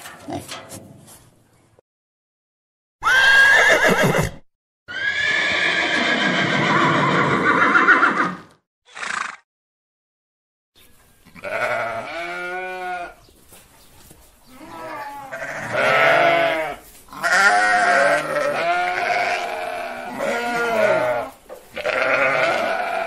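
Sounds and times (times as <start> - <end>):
sheep bleating: 11.2 - 13.2, 14.5 - 23.0.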